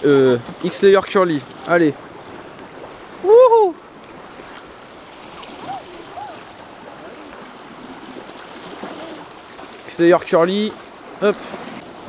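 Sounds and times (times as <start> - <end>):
waves washing against rocks: 0.0 - 12.0
person shouting: 3.2 - 3.8, 5.7 - 6.4.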